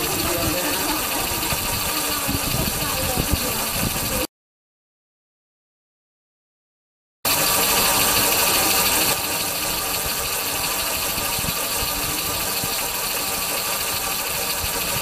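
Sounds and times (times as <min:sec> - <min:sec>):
vehicle engine running with hiss: 0:00.0 - 0:04.3, 0:07.3 - 0:15.0.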